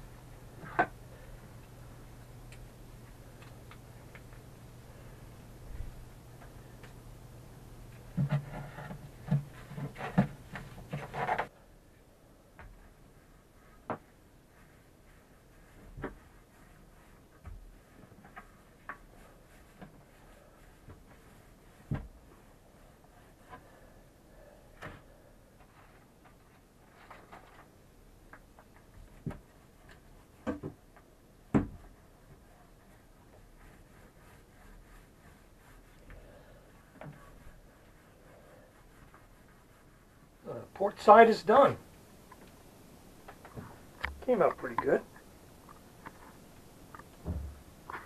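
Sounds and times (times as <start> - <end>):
low steady hum: 0.0 - 48.0
knocks and scraping in boat locker: 8.1 - 11.5.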